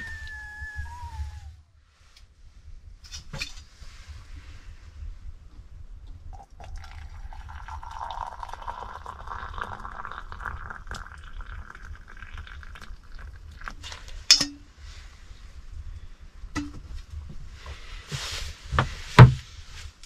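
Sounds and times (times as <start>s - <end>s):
water pouring into a mug: 6.3s - 13.8s
sharp clink: 14.3s - 14.6s.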